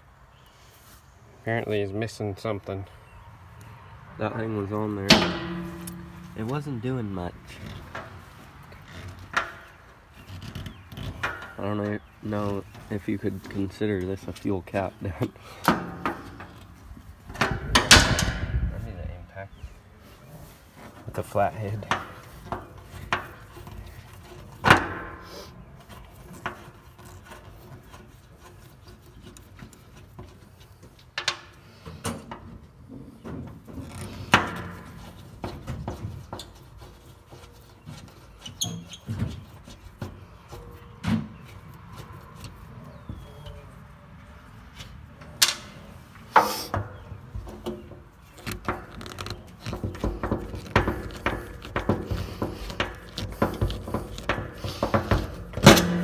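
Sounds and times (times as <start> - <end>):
sharp metal knocks: 5.0 - 8.1, 17.3 - 18.7, 48.5 - 56.0
screwdriver clicking and scraping metal: 48.4 - 56.0.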